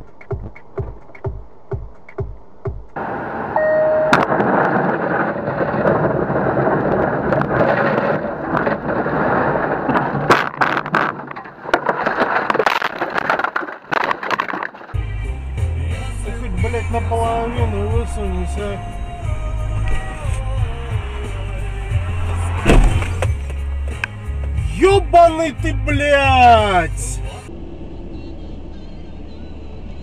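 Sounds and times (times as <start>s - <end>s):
road and tyre noise: 0.0s - 30.0s
short beep: 3.5s - 4.3s
knocks and rattles: 4.2s - 15.0s.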